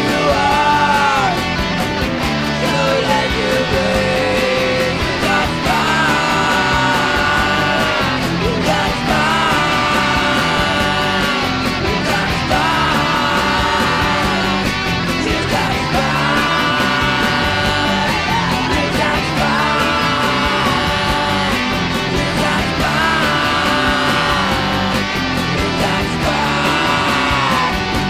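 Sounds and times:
rock band playing: 0:00.0 - 0:28.0.

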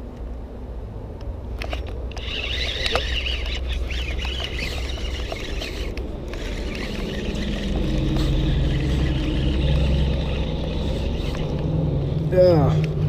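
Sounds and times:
steady low rumble: 0:03.4 - 0:13.0.

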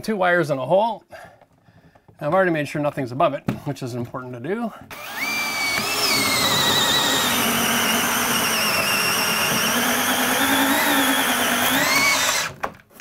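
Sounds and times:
cordless drill boring into wood: 0:04.9 - 0:12.7.

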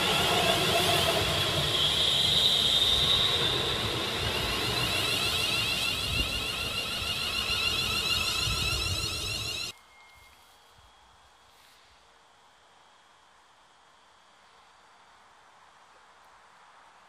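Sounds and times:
wheel and rail rumble: 0:00.0 - 0:09.8
train traction whine: 0:00.0 - 0:10.2.

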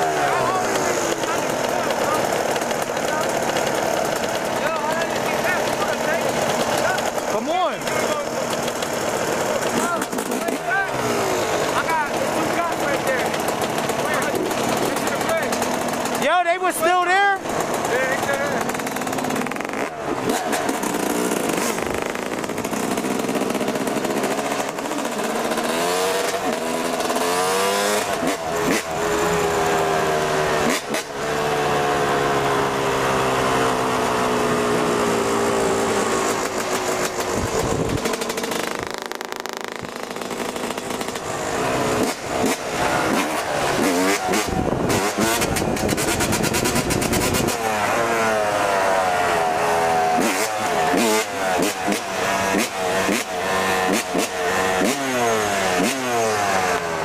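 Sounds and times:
motorcycle engine revving: 0:00.0 - 0:57.0
wind buffeting microphone: 0:37.2 - 0:38.2.

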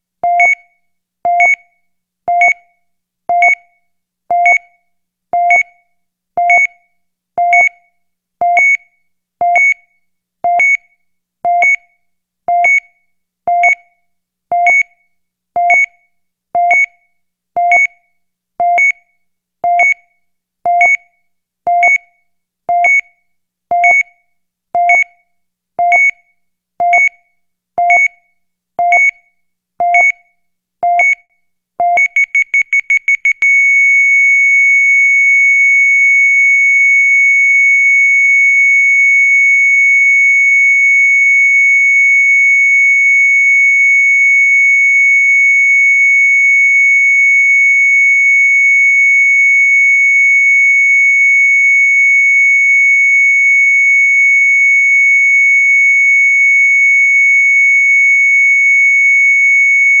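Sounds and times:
heart rate monitor beeping: 0:00.2 - 0:00.7, 0:01.3 - 0:02.7, 0:03.3 - 0:04.8, 0:05.4 - 0:05.8, 0:06.4 - 0:15.0, 0:15.6 - 0:16.0, 0:16.6 - 0:17.0, 0:17.6 - 0:18.0, 0:18.6 - 0:21.1, 0:21.7 - 0:24.2, 0:24.8 - 0:25.2, 0:25.8 - 0:36.6, 0:56.1 - 1:00.0
monitor flatline tone: 0:32.0 - 0:40.2, 0:54.1 - 1:00.0.

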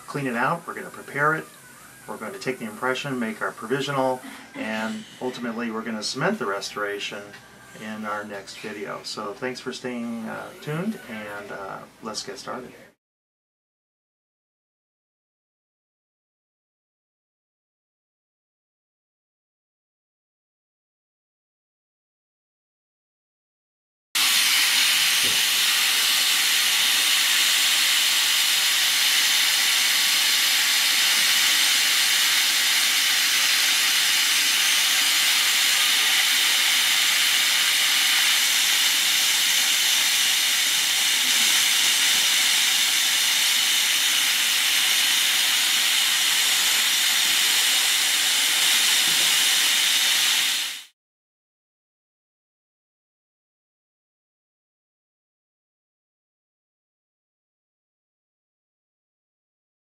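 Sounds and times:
dental drill whining: 0:00.0 - 0:09.3, 0:09.9 - 0:11.8, 0:24.2 - 0:50.9.

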